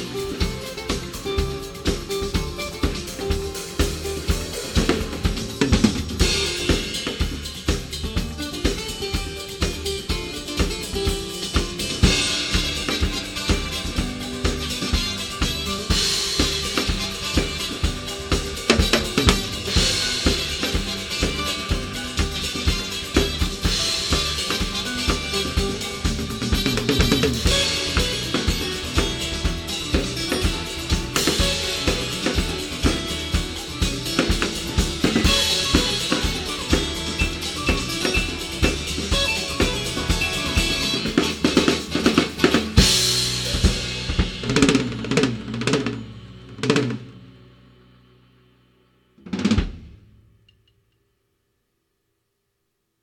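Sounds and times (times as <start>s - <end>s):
smooth jazz acoustic guitar track: 0.0s - 47.4s
drum kit samba groove: 0.0s - 47.9s, 49.2s - 50.4s
cymbal accent: 0.0s - 48.9s.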